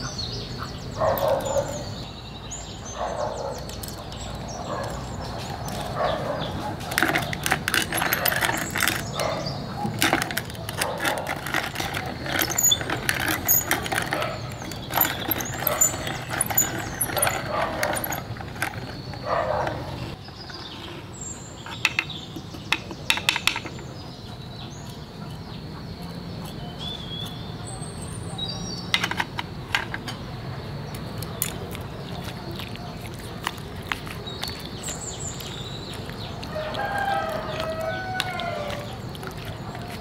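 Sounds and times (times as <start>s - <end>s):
spice mill grinding: 6.8s - 19.2s.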